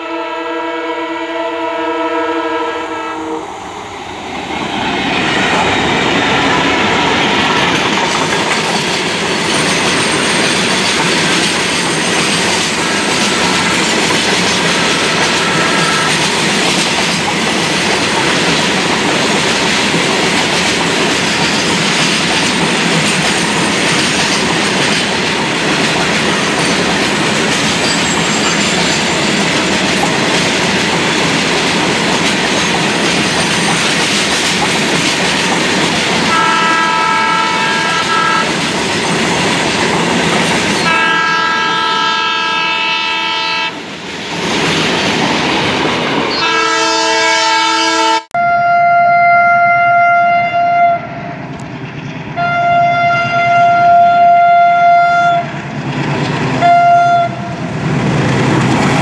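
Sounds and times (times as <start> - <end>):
train horn: 0.0 - 3.5, 14.6 - 16.3, 36.3 - 38.6, 40.8 - 43.8, 46.3 - 51.4, 52.4 - 55.5, 56.6 - 57.6
freight train rumbling past: 0.0 - 59.0.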